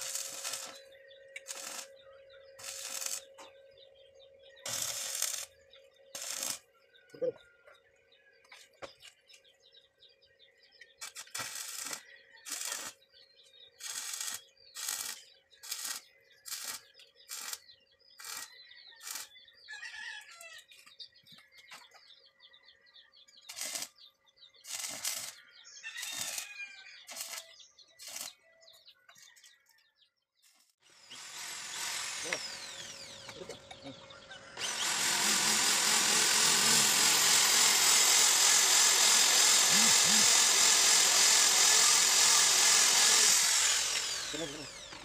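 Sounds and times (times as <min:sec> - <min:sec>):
welding arc hissing bursts: 0:00.0 - 0:00.8, 0:01.5 - 0:01.9, 0:02.6 - 0:03.2, 0:04.7 - 0:05.5, 0:06.2 - 0:06.6, 0:11.0 - 0:13.0, 0:13.8 - 0:17.6, 0:23.5 - 0:23.9, 0:24.7 - 0:25.4, 0:27.1 - 0:28.3, 0:31.0 - 0:32.9, 0:34.7 - 0:44.7
birds calling faintly: 0:00.0 - 0:45.0.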